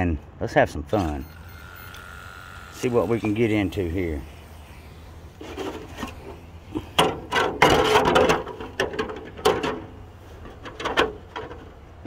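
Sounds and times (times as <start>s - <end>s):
plastic clatters and knocks: 7.0s - 9.9s.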